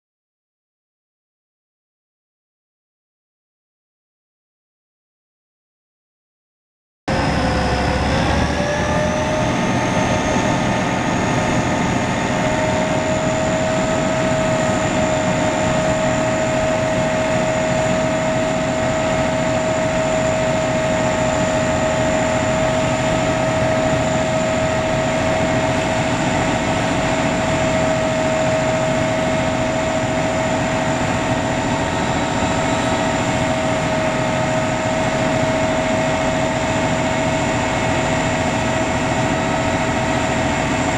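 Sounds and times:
truck engine running: 0:07.1 - 0:18.0
hydraulic pump whining: 0:07.1 - 0:36.0.

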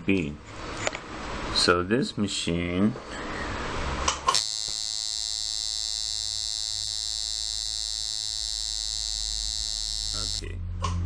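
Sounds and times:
tattoo machine buzzing: 0:04.3 - 0:10.5.

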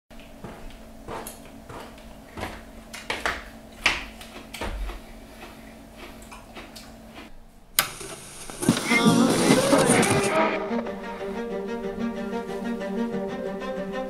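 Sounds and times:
knocks and rustles of person moving: 0:00.2 - 0:05.1.

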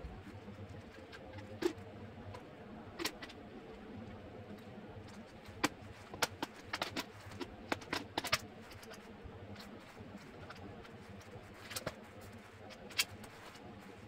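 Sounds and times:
plastic parts clicking and knocking: 0:00.3 - 0:03.4, 0:05.0 - 0:12.1.

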